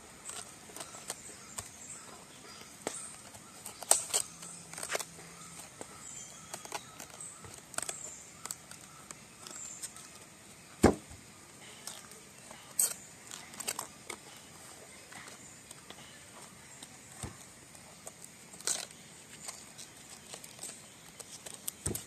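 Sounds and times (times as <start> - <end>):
cabbage leaves snapping: 0.2 - 11.0, 11.8 - 14.5, 16.5 - 22.0
sharp knock: 10.8 - 11.1.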